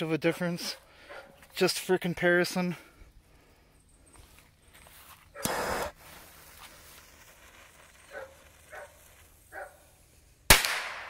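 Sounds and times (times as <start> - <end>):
faint dog barks: 0.2 - 1.5, 8.1 - 9.8.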